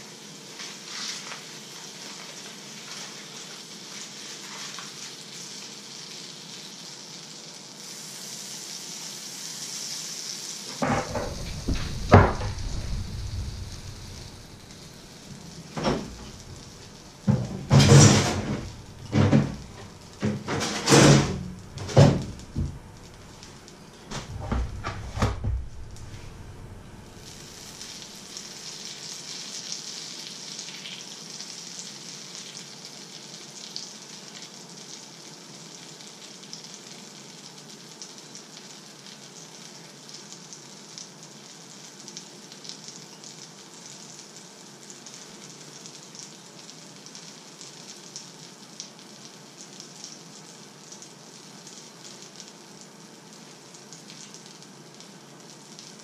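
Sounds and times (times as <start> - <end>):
butter sizzling in a frying pan: 0.0 - 20.5, 25.5 - 56.0
loud knocks and clatter: 10.7 - 23.4, 24.1 - 27.2.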